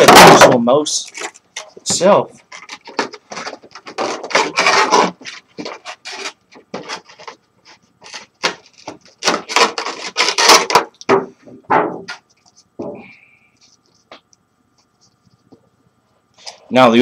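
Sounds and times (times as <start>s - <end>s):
cardboard box scraping and rubbing: 2.5s - 10.8s.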